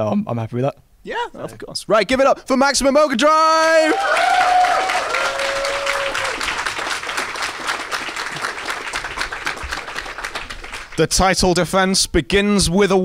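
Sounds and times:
people whooping: 3.7s - 10.6s
audience applauding: 3.8s - 11.3s.

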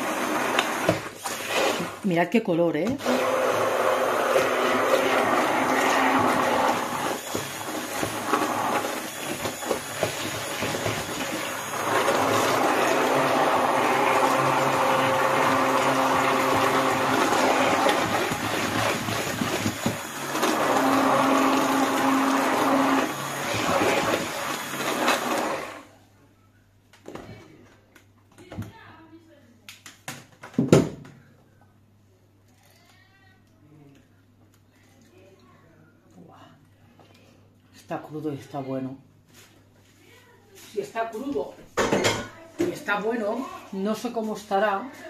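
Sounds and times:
immersion blender motor: 0.0s - 2.0s, 2.9s - 25.9s.

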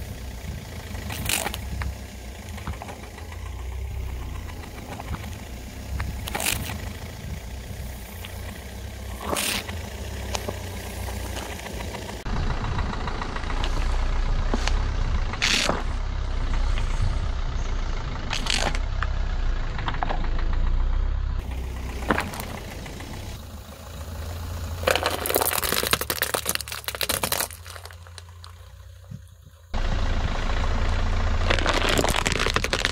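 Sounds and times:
car engine idling: 0.0s - 32.9s
sharp plastic cracks and pops: 18.3s - 18.8s, 24.9s - 28.6s, 31.4s - 32.9s
plastic containers crushed: 24.8s - 28.6s, 31.4s - 32.9s.

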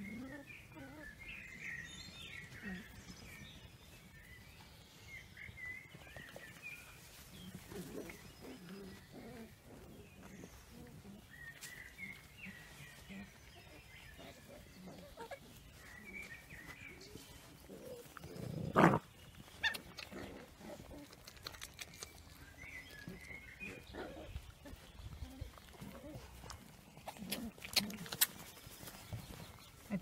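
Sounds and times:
puppies squeaking and whimpering: 12.2s - 18.2s.

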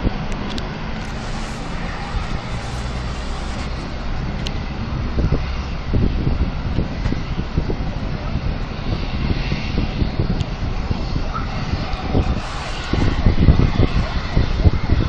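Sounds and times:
gas fire roaring: 0.0s - 15.0s.

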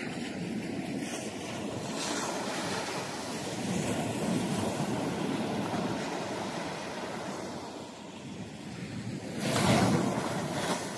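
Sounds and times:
waves breaking on a sandy beach: 0.0s - 10.9s.

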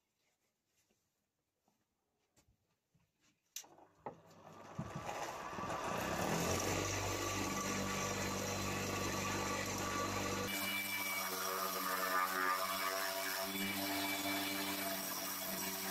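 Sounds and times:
electric lathe motor humming: 4.1s - 13.5s.

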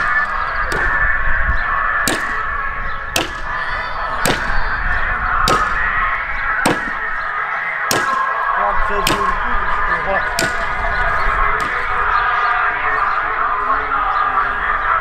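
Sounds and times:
background din: 0.0s - 13.6s
axe chopping wood: 2.1s - 2.4s, 3.2s - 3.5s, 4.2s - 4.6s, 5.5s - 5.8s, 6.6s - 7.0s, 7.9s - 8.3s, 9.0s - 9.3s, 10.4s - 10.8s, 11.6s - 11.9s.

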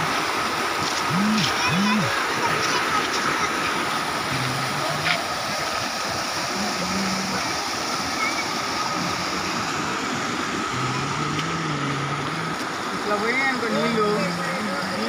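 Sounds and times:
stream rushing in flood: 0.0s - 15.0s.

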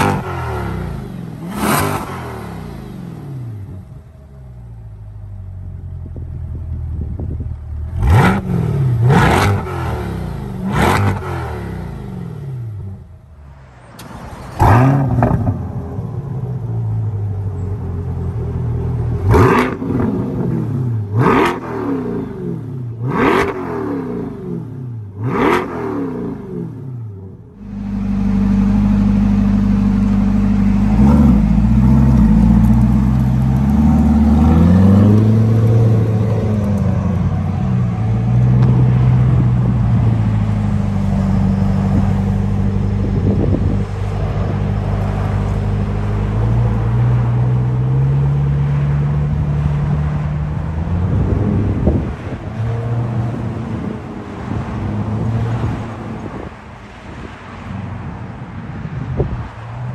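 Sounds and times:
car exhaust pulling away: 14.0s - 56.5s.

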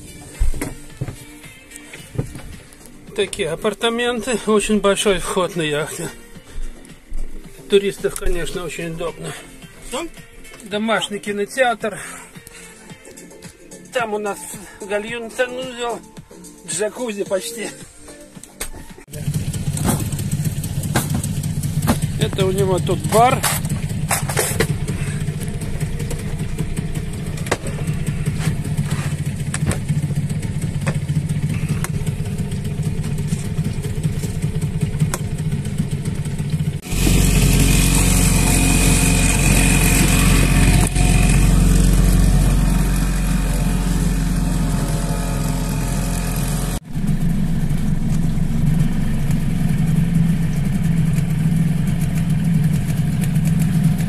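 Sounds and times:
outboard motor running: 19.1s - 54.0s.

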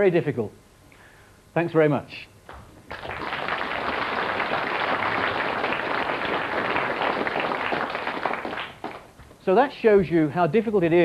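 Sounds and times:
audience applauding: 2.5s - 9.1s.

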